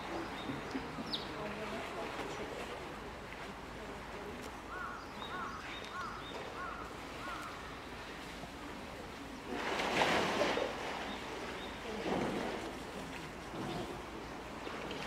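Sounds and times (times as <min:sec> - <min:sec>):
water splashing loudly: 0:09.5 - 0:11.0.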